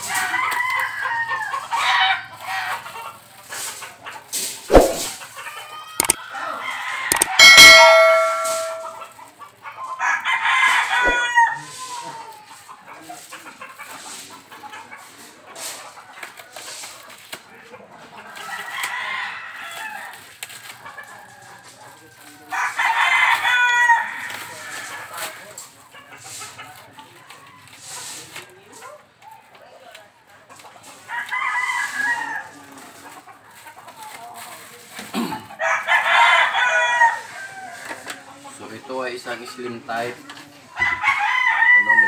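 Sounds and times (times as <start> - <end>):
sharp knocks: 4.7 - 5.1
rooster crowing: 40.8 - 42.0.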